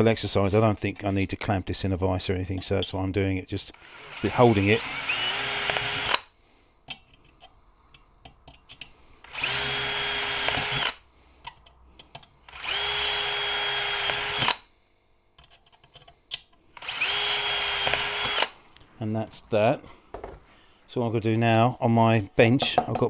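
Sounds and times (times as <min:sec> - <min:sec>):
cordless drill whining: 0:03.7 - 0:06.3, 0:09.2 - 0:11.0, 0:12.5 - 0:14.7, 0:16.7 - 0:18.6.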